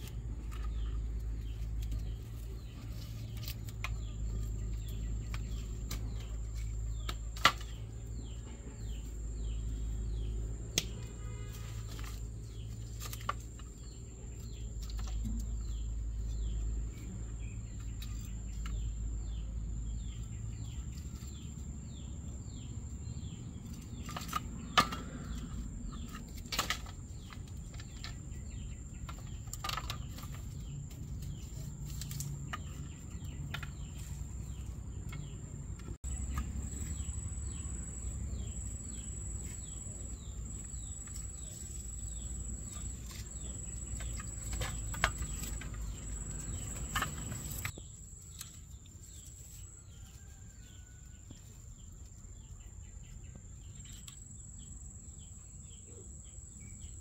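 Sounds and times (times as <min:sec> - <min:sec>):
birds chirping: 0:00.0 - 0:51.0
bamboo rod tapping: 0:10.7 - 0:11.1.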